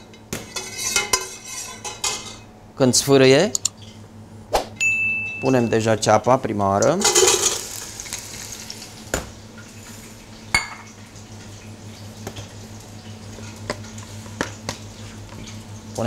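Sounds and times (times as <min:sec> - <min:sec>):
steady low hum: 0:00.0 - 0:16.0
onion sizzling in oil: 0:07.0 - 0:15.8
glass bowls clinking: 0:10.5 - 0:11.0.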